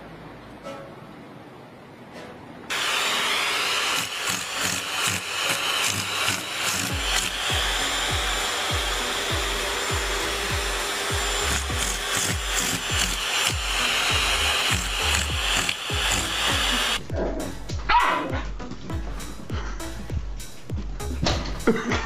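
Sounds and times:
vacuum cleaner running: 0:02.7 - 0:17.0
music with thumping beat: 0:06.7 - 0:22.0.

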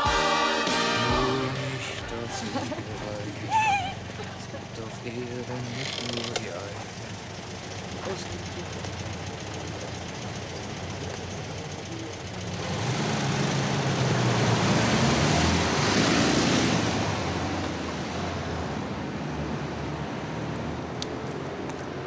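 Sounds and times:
car driving past: 0:12.4 - 0:21.3.

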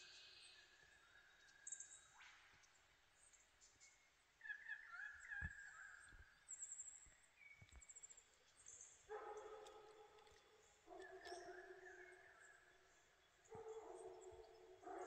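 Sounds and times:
forest birds chirping: 0:00.0 - 0:15.0.

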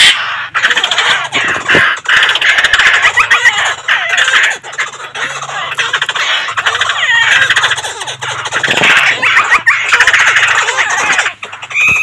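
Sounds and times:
birds chattering and calling: 0:00.0 - 0:12.0.

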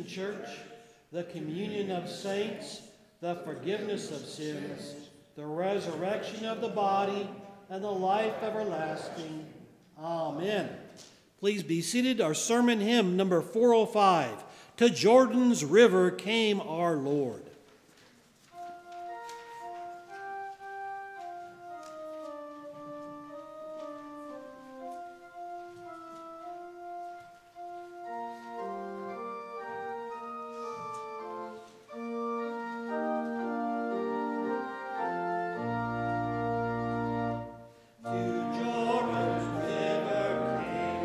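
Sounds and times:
congregation singing a hymn: 0:00.0 - 0:10.8, 0:19.3 - 0:41.0
church organ playing: 0:18.5 - 0:41.0.

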